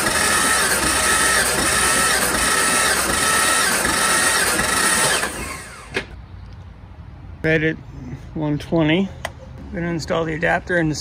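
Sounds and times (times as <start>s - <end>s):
engine cranking by starter motor: 0.0s - 6.2s.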